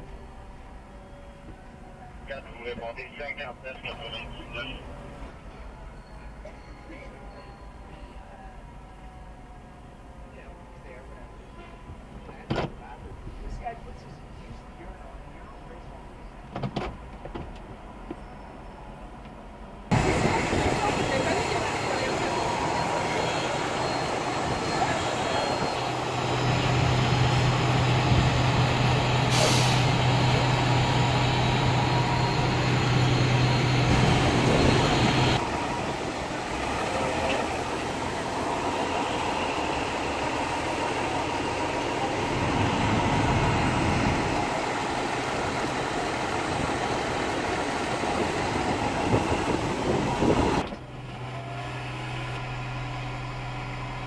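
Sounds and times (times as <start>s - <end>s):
diesel engines humming: 0.0s - 54.0s
traffic: 0.0s - 54.0s
air brakes hissing: 29.1s - 30.5s.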